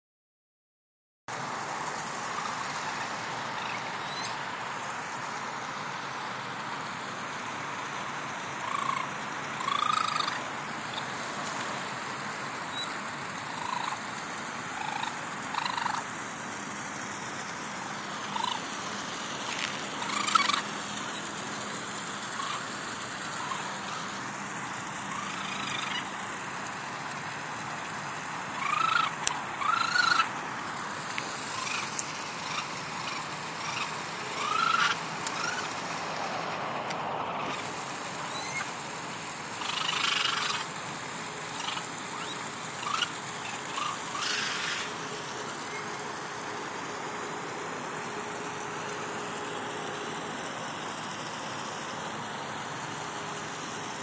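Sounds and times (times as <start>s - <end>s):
steady background hiss: 1.3s - 54.0s
young raccoon distress cries: 8.6s - 11.1s, 12.7s - 14.0s, 14.7s - 16.1s, 18.2s - 18.6s, 20.0s - 20.7s, 22.4s - 22.7s, 25.1s - 26.1s, 28.6s - 30.3s, 31.5s - 35.7s, 38.3s - 38.7s, 39.6s - 40.7s, 41.6s - 44.9s.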